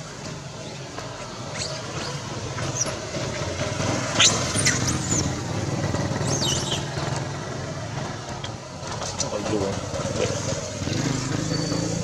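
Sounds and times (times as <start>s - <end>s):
macaques shrieking: 4.2s - 5.4s, 6.2s - 6.9s.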